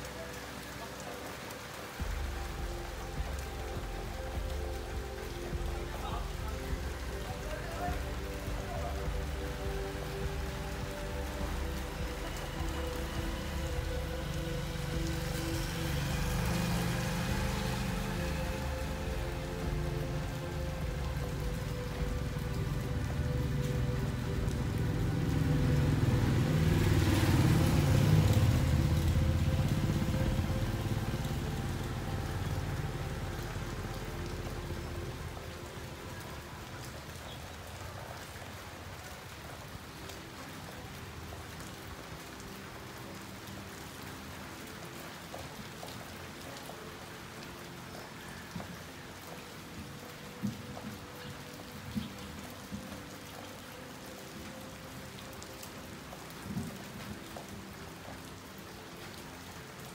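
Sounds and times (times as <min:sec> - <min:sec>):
rain falling on street: 0:00.0 - 0:59.9
vehicle engine passing: 0:12.7 - 0:20.6, 0:24.4 - 0:34.0.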